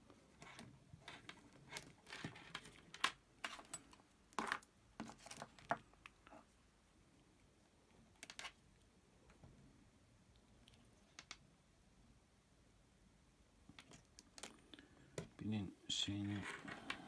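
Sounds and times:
clicks and rustles of handling leads: 0.4 - 6.5, 13.7 - 15.4, 16.1 - 17.0.

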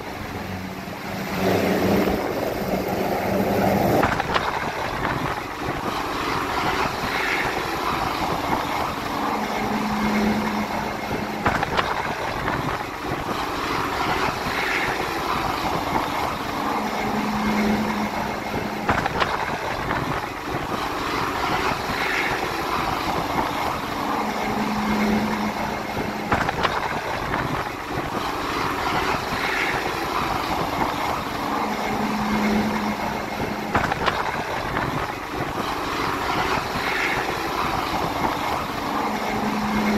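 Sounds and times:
helicopter rotors rushing: 0.0 - 39.9
low hum: 0.0 - 39.9.

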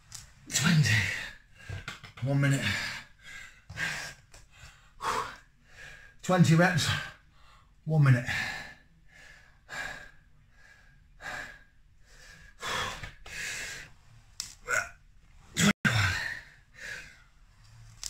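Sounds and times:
man breathing heavily: 2.6 - 6.2, 6.8 - 14.0, 15.9 - 17.3.

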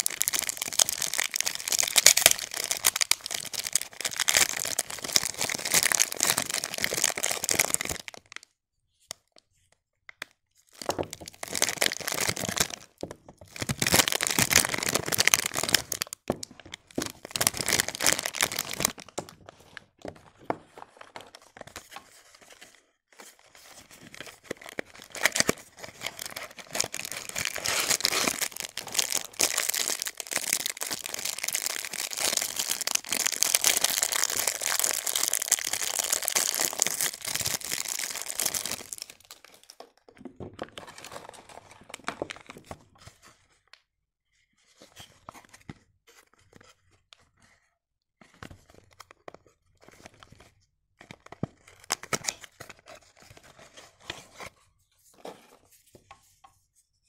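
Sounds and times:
soap wrappers crinkling: 0.0 - 8.5, 10.2 - 40.0, 48.6 - 54.5.

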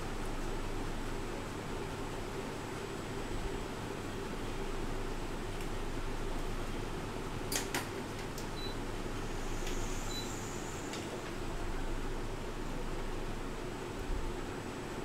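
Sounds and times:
fan whirring with low hum: 0.0 - 15.0
faint ticks: 9.6 - 9.9.

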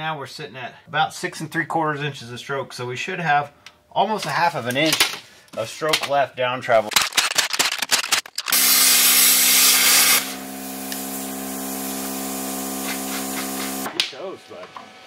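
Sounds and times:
gas torch flame hissing: 8.6 - 13.9.

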